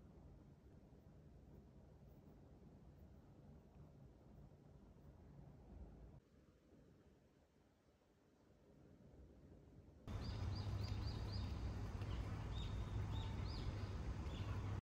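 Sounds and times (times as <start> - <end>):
low steady rumble: 10.1 - 14.8
small birds chirping: 10.1 - 14.8.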